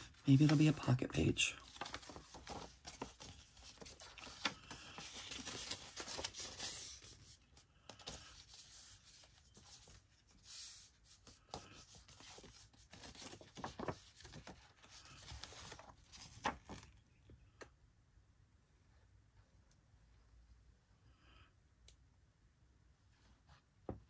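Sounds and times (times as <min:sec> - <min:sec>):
paper rustling and folding: 0:00.0 - 0:17.2.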